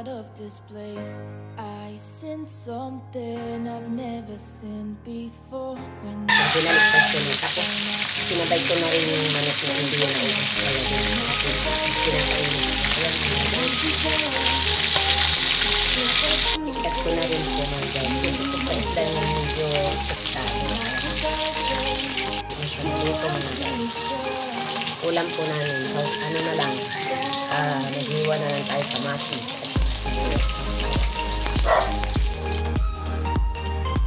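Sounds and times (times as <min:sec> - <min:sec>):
background music: 0:00.0 - 0:34.0
fish sizzling in hot oil: 0:06.3 - 0:32.6.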